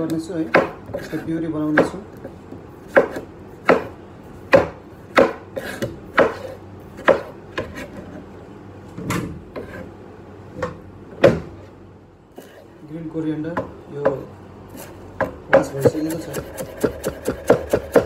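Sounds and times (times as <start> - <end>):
knife chopping on plastic board: 0.0 - 7.8, 15.2 - 18.0.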